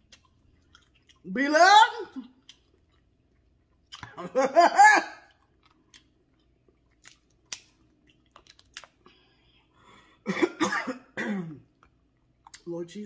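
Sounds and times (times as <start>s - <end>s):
faint eating clicks: 11.7s - 12.8s.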